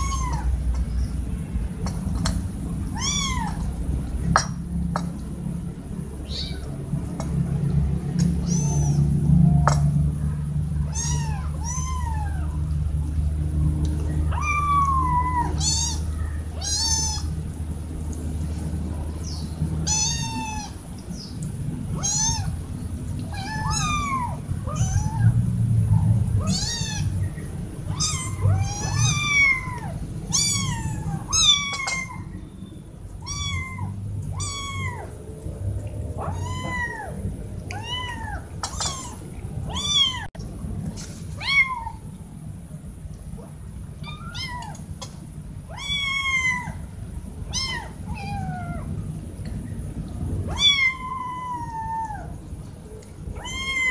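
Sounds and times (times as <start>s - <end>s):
kittens meowing: 0.0s - 0.6s, 2.8s - 3.8s, 6.2s - 6.7s, 8.4s - 9.8s, 10.8s - 12.7s, 14.1s - 17.4s, 19.2s - 20.9s, 21.9s - 22.6s, 23.2s - 32.4s, 33.2s - 35.2s, 36.2s - 40.3s, 44.0s - 44.8s, 45.7s - 46.8s, 47.5s - 48.9s, 50.5s - 52.4s, 53.3s - 53.9s.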